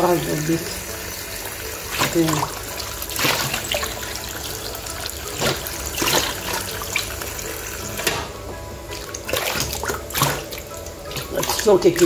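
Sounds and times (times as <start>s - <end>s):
hands rinsing leaves: 0.0s - 12.0s
tap water running into pot: 0.0s - 12.0s
short water splashes: 3.2s - 4.0s, 5.2s - 7.2s, 8.9s - 12.0s.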